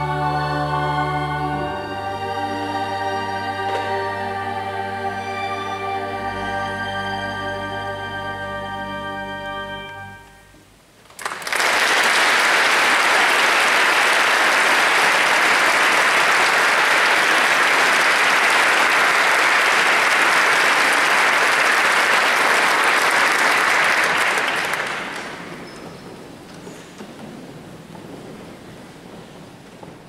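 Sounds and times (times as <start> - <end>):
audience applauding: 11.0 - 26.1.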